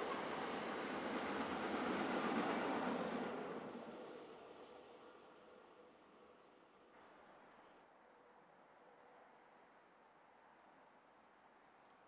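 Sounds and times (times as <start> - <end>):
faint passing freight train: 0.0 - 7.6.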